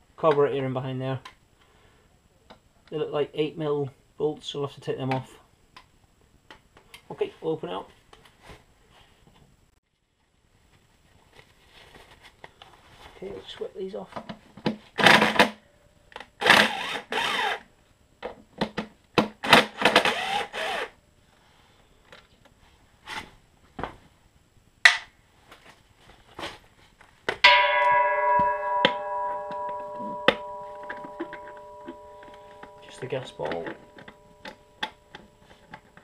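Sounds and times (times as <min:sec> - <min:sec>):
cordless drill motor: 0:16.4 - 0:17.6, 0:19.8 - 0:20.9
handling clicks and knocks: 0:27.2 - 0:36.0
struck metal ringing: 0:27.4 - 0:36.0.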